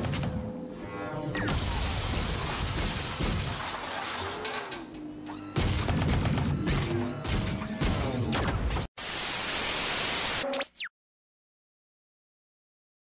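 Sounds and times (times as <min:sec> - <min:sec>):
sharp cracks and impacts: 0:01.5 - 0:04.7, 0:05.6 - 0:08.9
tv static hiss: 0:09.0 - 0:10.8.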